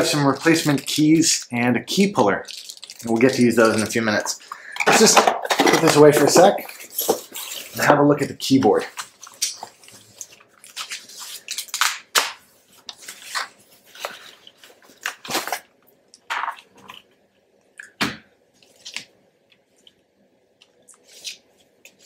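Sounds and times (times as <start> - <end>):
plastic wrapping crinkling: 0.0 - 17.1.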